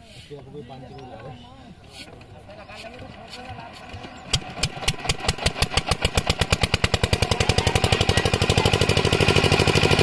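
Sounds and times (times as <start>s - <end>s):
diesel engine chugging: 2.3s - 10.0s.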